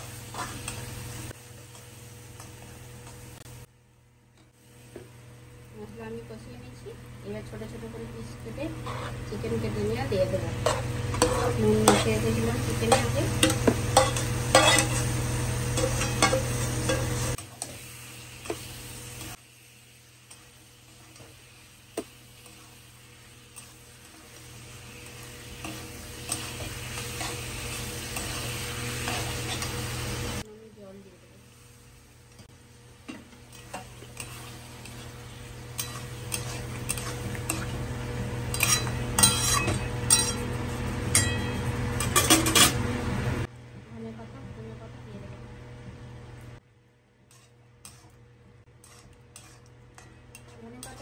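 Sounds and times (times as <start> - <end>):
chicken sizzling in hot oil: 0.0 - 3.7, 8.5 - 43.5
metal spatula scraping pan: 8.7 - 9.3, 10.6 - 17.7, 35.7 - 37.7, 38.5 - 40.5, 47.3 - 48.2, 48.8 - 51.0.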